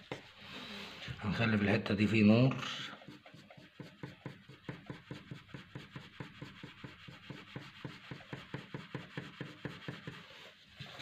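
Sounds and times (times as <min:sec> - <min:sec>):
pencil scratching on paper: 0:02.6 - 0:11.0.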